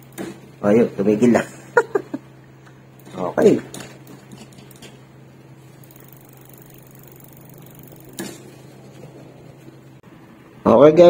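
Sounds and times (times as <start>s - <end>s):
steady low hum: 0.0s - 11.0s
bicycle wheel spinning: 3.0s - 10.0s.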